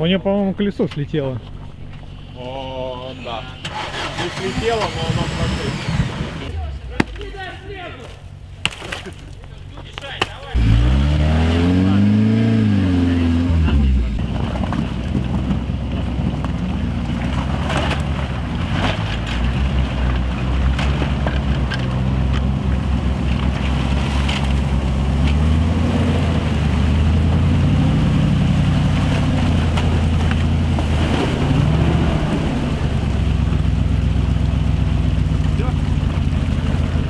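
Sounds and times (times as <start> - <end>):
off-road engine revving: 2.1 - 7.0, 10.4 - 37.0
sharp knocks and cracks: 8.6 - 10.5, 16.2 - 25.5.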